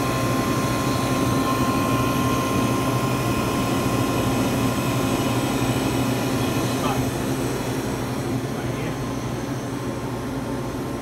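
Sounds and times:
ice machine humming and whirring: 0.0 - 11.0
thin steady whine: 0.0 - 11.0.

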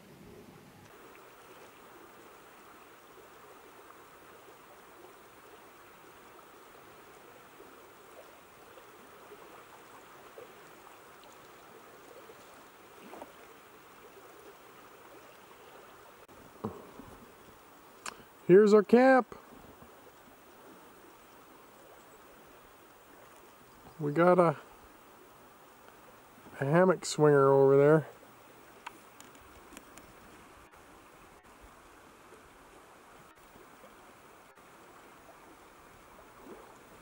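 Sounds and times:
river flowing: 0.8 - 37.0.

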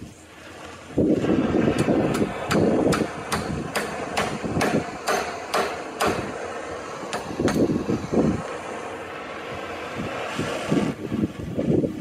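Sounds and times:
hammer striking steel: 1.8 - 6.4, 7.1 - 7.8.

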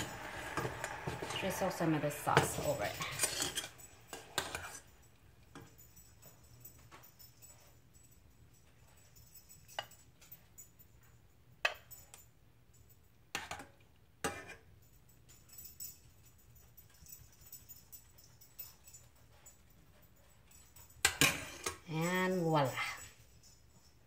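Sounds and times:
metal spoon clinking against dishes: 0.0 - 7.7, 8.6 - 10.8, 12.9 - 19.6, 20.6 - 23.2.

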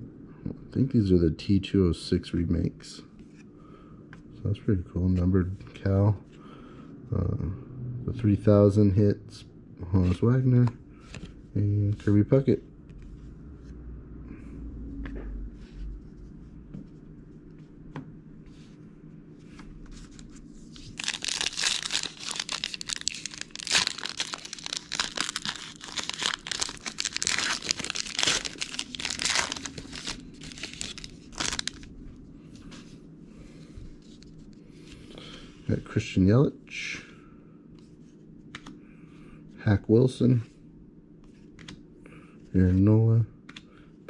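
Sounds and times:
wrapper tearing and crinkling: 20.8 - 31.9.

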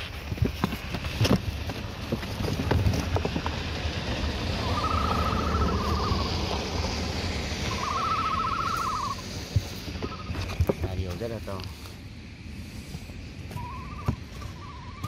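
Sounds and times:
chicks knocking and scraping in box: 0.0 - 3.7, 9.5 - 11.4
steady low rumble: 0.0 - 15.0
chick trilled call: 7.7 - 9.2.

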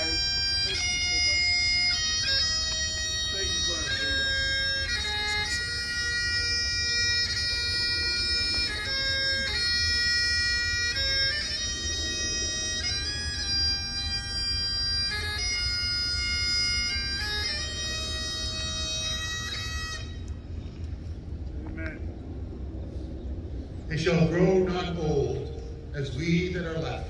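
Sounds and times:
bagpipes playing slow lament: 0.0 - 20.9.

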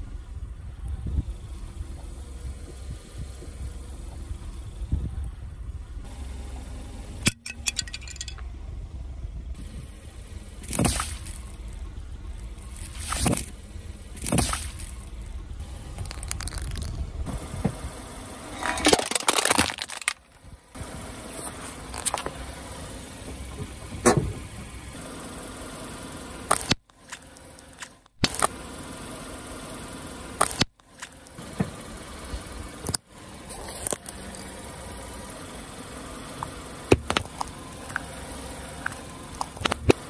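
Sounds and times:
car engine running: 0.0 - 40.0
objects cracking under a tyre: 14.2 - 15.2, 15.9 - 17.2, 18.5 - 20.5, 21.4 - 22.4, 26.5 - 28.6, 30.4 - 31.3, 32.8 - 34.5, 36.4 - 38.1, 38.8 - 40.0.

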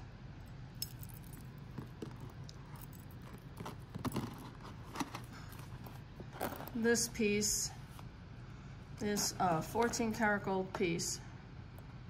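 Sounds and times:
chain necklace clinking: 0.8 - 4.7.

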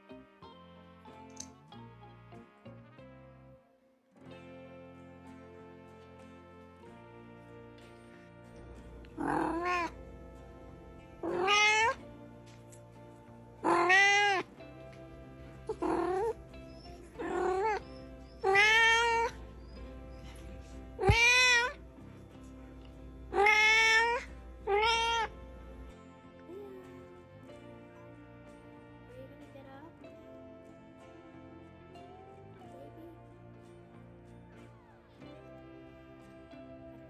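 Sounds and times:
cat meowing: 9.1 - 10.0, 11.2 - 12.1, 13.6 - 14.5, 15.7 - 20.4, 21.0 - 21.8, 23.3 - 25.4.

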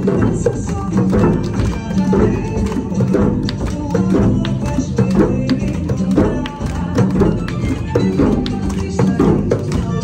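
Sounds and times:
djembe drums playing: 0.0 - 10.0.

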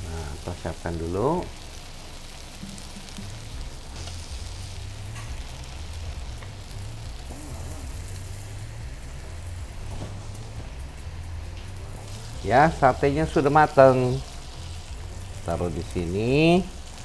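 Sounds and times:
meat sizzling on a grill: 0.0 - 17.0
low hum: 2.5 - 13.6.

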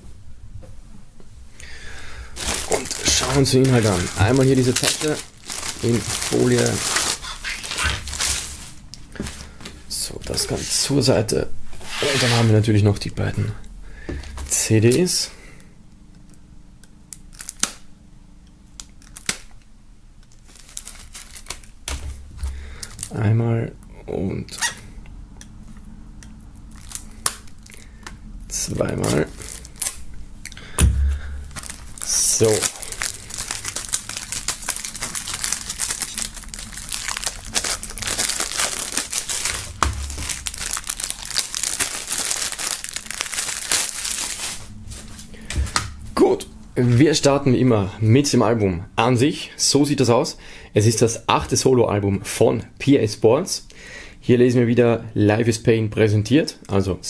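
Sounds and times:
plastic film crinkling: 2.3 - 10.8, 17.3 - 17.8, 18.8 - 19.6, 20.3 - 23.2, 26.6 - 27.8, 28.5 - 30.1, 30.8 - 46.0
low knock: 30.8 - 31.4
dull bump: 30.8 - 31.6.

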